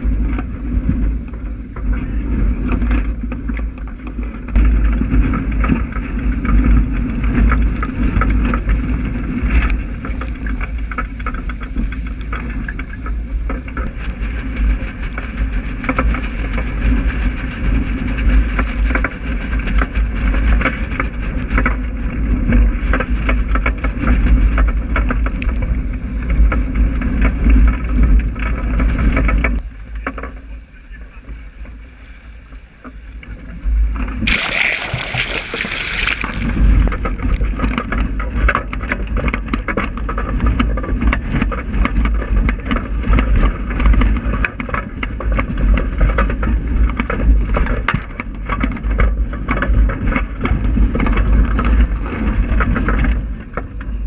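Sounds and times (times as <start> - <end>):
strong wind on microphone: 0.0 - 29.6
water splashing along boat hull: 33.8 - 39.1.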